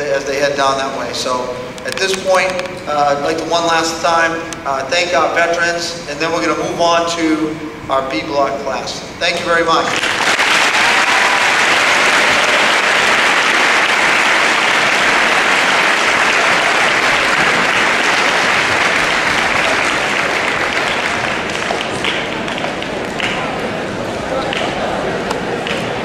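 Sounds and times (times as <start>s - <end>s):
large audience applauding: 9.9s - 26.0s.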